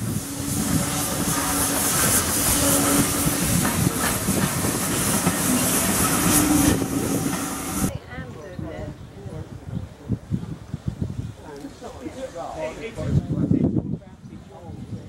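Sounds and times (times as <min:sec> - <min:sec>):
steam hissing: 0:00.0 - 0:07.9
train running on rails: 0:00.0 - 0:08.0.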